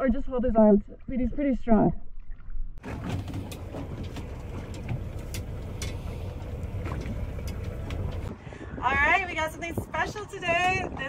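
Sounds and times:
wind: 0.0s - 11.0s
water noise: 1.9s - 11.0s
boat engine rumbling: 2.8s - 11.0s.

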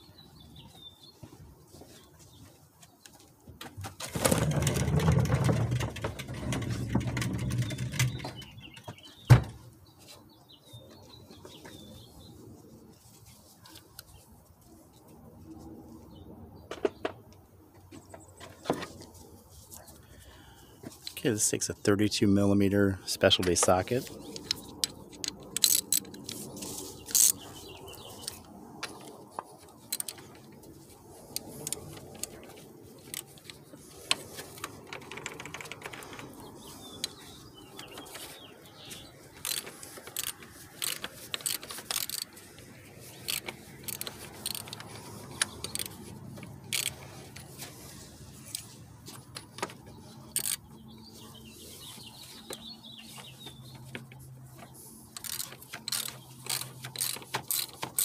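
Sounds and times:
ratchet wrench clicking: 24.4s - 26.3s, 27.1s - 27.4s, 39.4s - 42.4s, 43.2s - 46.0s, 46.7s - 47.0s, 50.3s - 50.6s, 55.2s - 58.0s.

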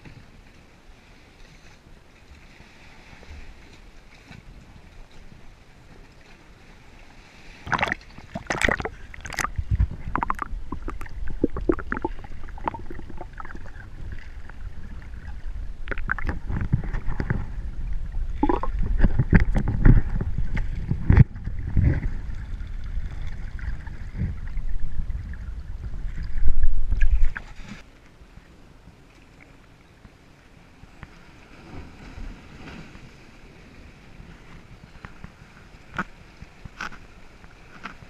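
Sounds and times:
water sloshing and splashing: 0.0s - 28.1s
sharp splashes and knocks: 7.6s - 13.7s, 15.8s - 17.5s
low rumble: 8.4s - 27.6s.

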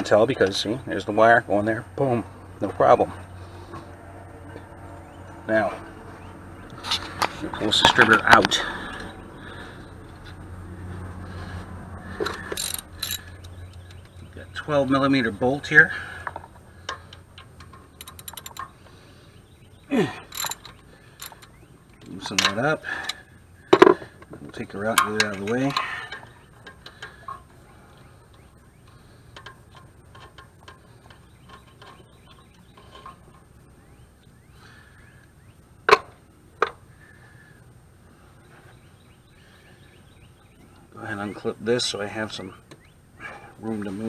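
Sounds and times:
wrench clicking on metal: 12.2s - 13.5s, 16.8s - 18.7s, 20.3s - 21.5s
tool being set down clacks: 23.7s - 25.8s.

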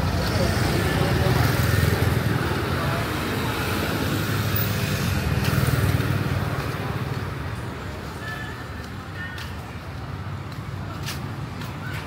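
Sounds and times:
passing vehicle engines: 0.0s - 12.0s
steady road noise: 0.0s - 12.0s.

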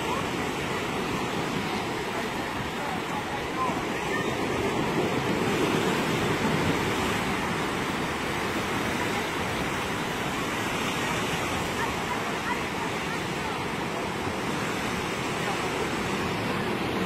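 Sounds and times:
ocean surf breaking: 0.0s - 17.0s.

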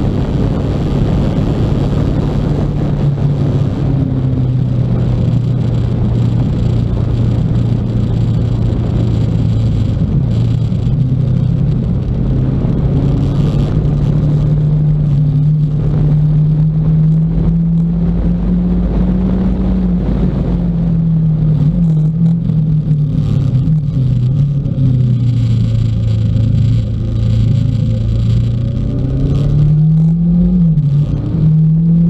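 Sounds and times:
motorcycle engine running: 0.0s - 32.0s
wind rumble on microphone: 0.0s - 32.0s.

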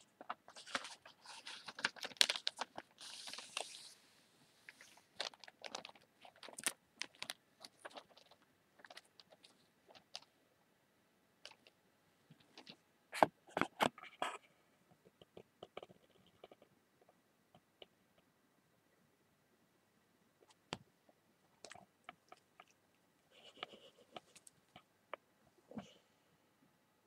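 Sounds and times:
newspaper pages crinkling: 0.2s - 4.0s, 4.7s - 10.2s.

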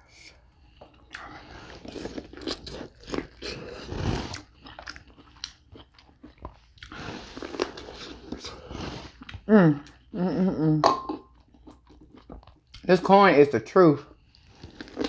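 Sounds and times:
chewing corn on the cob: 1.0s - 10.0s, 11.4s - 12.9s, 14.2s - 15.0s.

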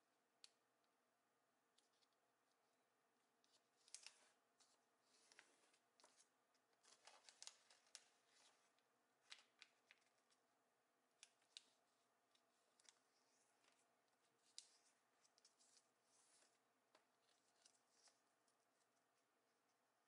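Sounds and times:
paper being folded and creased: 3.4s - 10.4s, 12.4s - 19.0s.

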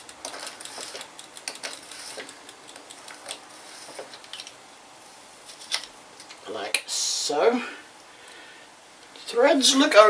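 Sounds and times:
socket ratchet clicking: 0.0s - 3.5s.

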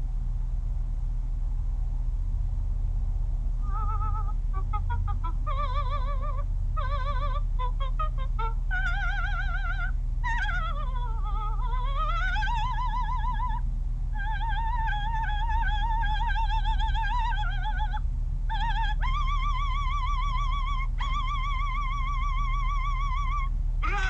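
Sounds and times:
steady low hum: 0.0s - 24.0s
operatic singing voice: 3.6s - 13.6s, 14.2s - 24.0s.

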